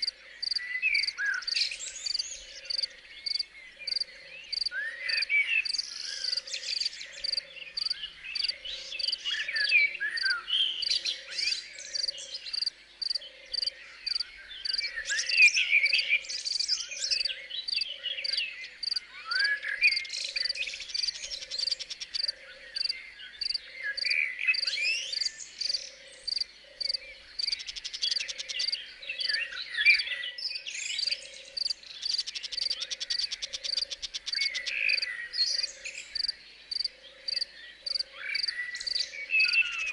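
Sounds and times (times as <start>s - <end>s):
crickets chirping: 0.0s - 11.0s, 12.0s - 15.4s, 17.2s - 29.4s, 31.6s - 39.8s
birds singing: 0.0s - 39.9s.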